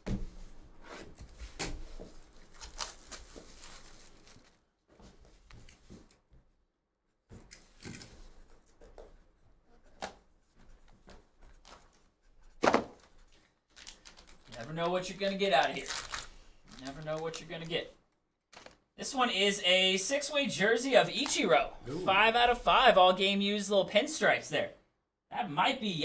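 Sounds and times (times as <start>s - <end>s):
wrapping rustling and clicking: 2.0s - 4.7s, 12.9s - 17.9s, 18.5s - 18.9s.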